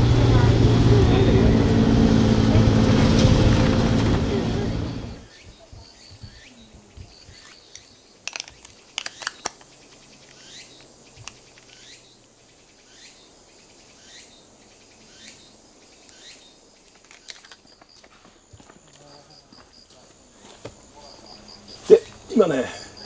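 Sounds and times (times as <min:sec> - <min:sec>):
high falling chirping calls: 0:04.9 - 0:17.8
sharp clicks: 0:07.4 - 0:11.9.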